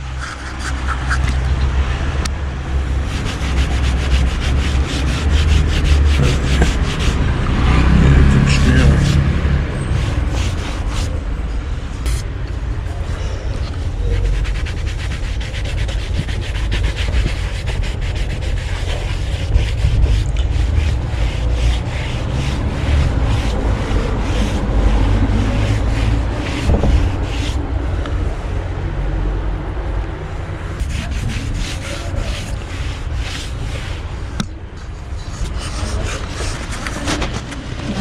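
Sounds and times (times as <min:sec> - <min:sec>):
cloth rag rubbing on wood: 0:00.0 - 0:01.6, 0:03.0 - 0:07.4, 0:14.0 - 0:27.6, 0:30.8 - 0:34.2
steady low rumble: 0:00.0 - 0:37.0.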